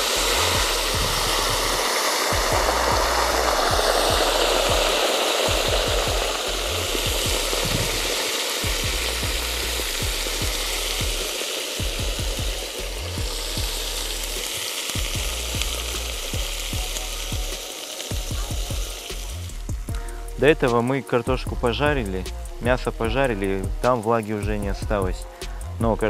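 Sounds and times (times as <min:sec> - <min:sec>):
water poured into hot oil sizzling: 0:00.0 - 0:26.0.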